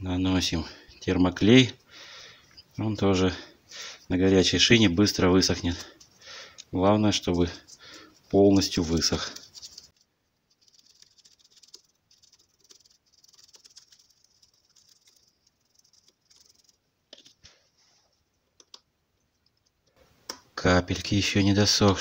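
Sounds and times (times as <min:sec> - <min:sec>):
brush tapping and scratching: 0:04.2 - 0:20.0.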